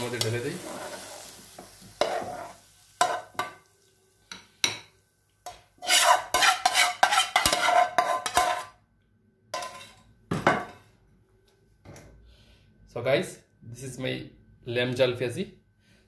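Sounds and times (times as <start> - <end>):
spatula scraping frying pan: 0.1 - 3.5, 5.5 - 8.8, 9.6 - 10.0.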